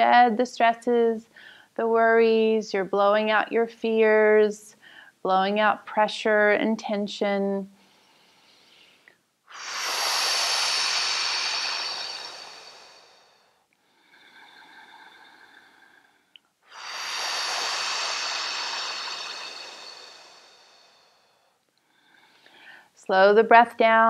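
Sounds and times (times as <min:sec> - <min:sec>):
woman exhaling through pursed lips: 0:07.8 - 0:22.9
inhale through the nose: 0:07.8 - 0:23.0.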